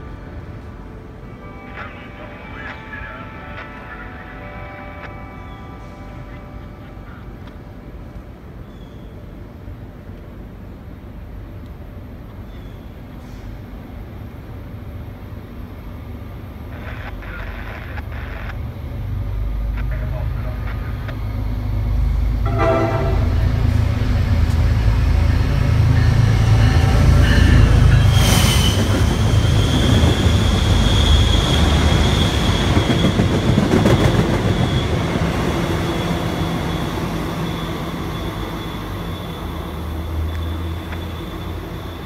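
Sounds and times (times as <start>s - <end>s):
train rumbling past: 0.0s - 42.0s
train horn toot: 22.4s - 24.1s
high-pitched wheel squeal: 26.0s - 42.0s.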